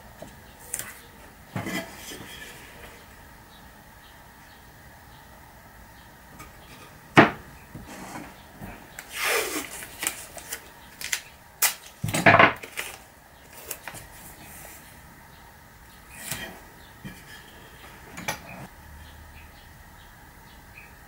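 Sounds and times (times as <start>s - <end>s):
wooden strips knocking on workbench: 7.2s - 7.9s
masking tape ripping off roll: 9.0s - 13.0s.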